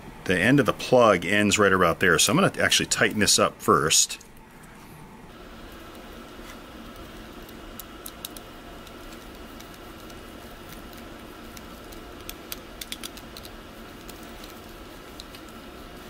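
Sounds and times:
steady background hum: 0.0s - 16.0s.

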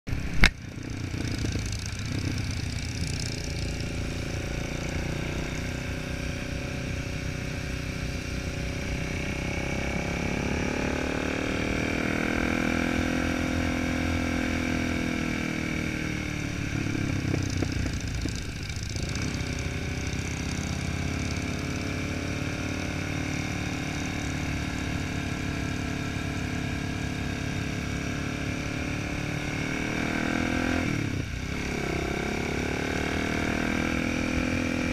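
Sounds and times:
wind noise: 0.1s - 3.4s, 15.0s - 20.0s
motorcycle engine running: 0.1s - 34.9s.

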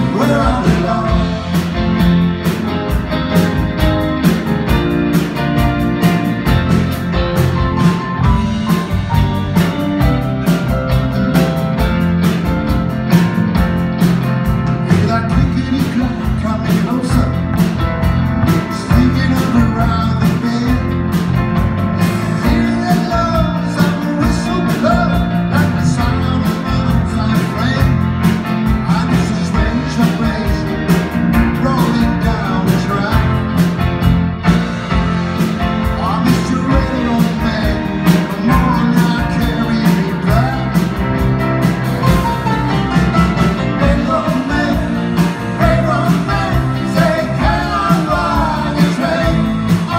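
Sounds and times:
driving drum beat: 0.0s - 49.9s
live rock and roll band: 0.0s - 49.9s.

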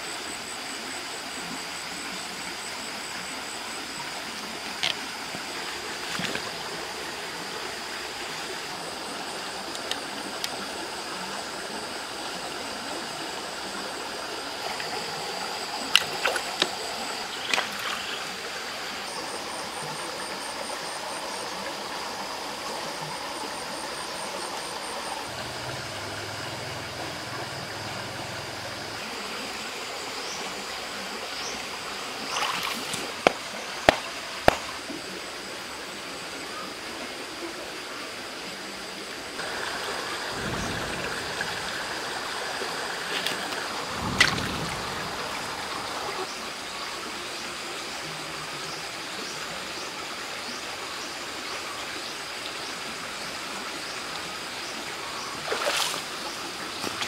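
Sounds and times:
stream water running: 0.0s - 57.0s.

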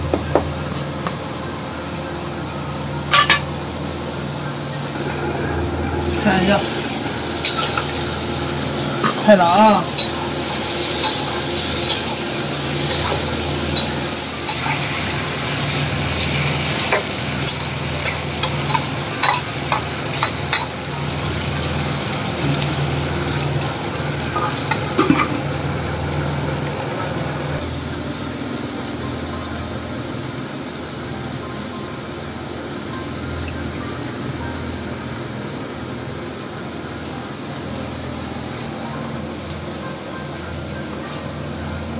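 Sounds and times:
meat sizzling in a wok: 2.8s - 26.8s.

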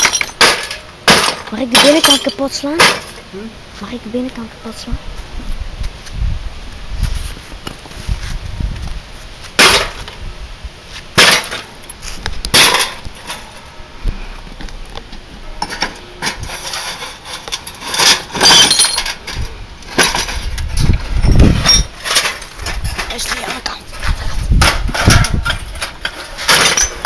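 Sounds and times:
glass shards clinking: 0.0s - 3.2s, 16.5s - 23.6s, 24.6s - 27.0s
hammer smashing television glass: 11.2s - 11.6s, 17.9s - 19.2s, 26.4s - 27.0s.

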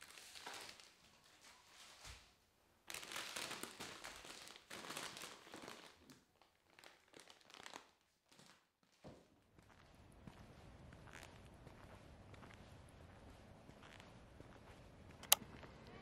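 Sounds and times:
plastic packaging crinkling: 0.0s - 1.0s, 2.9s - 8.6s.

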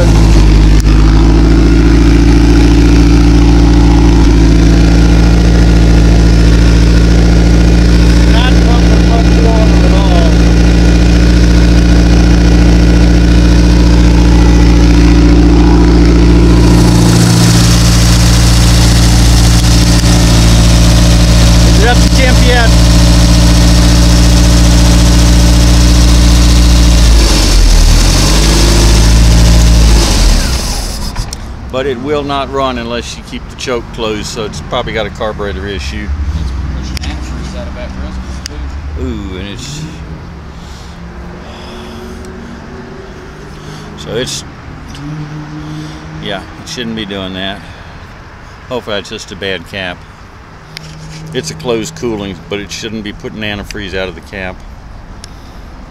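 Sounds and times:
boat engine running: 0.0s - 32.2s, 43.6s - 47.1s, 50.7s - 54.3s.

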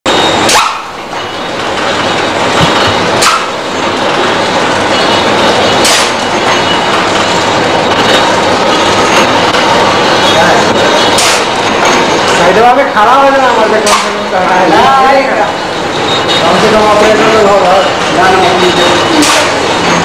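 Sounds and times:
packing machine clattering: 0.3s - 12.7s, 17.3s - 20.0s.

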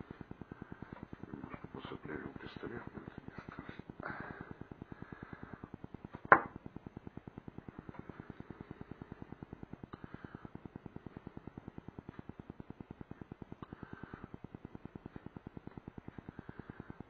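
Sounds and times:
glass bottle knocking on wooden table: 6.3s - 6.6s.

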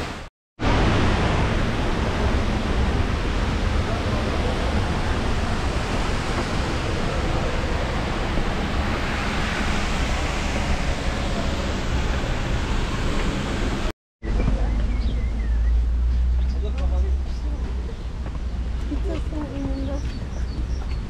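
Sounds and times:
waterfall rushing: 0.0s - 13.9s.

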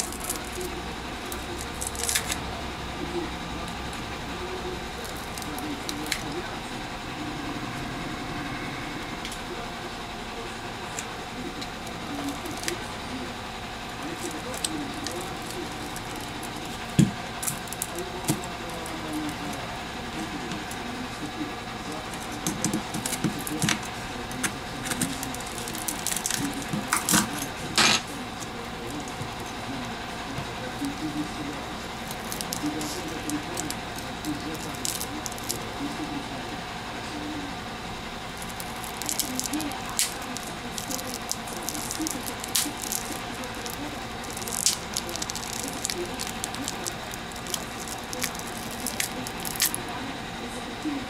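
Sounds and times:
adhesive tearing crackles and snaps: 0.0s - 2.5s, 5.0s - 6.4s, 11.0s - 12.9s, 14.0s - 19.6s, 22.2s - 29.4s, 31.9s - 35.8s, 38.3s - 49.8s
background hum: 0.0s - 51.0s.

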